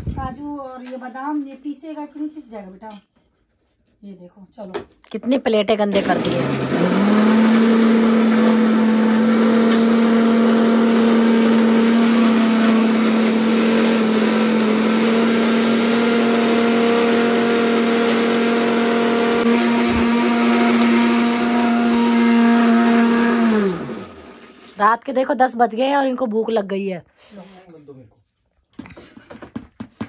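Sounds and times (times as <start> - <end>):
mixer grinder running: 5.8 - 25.5.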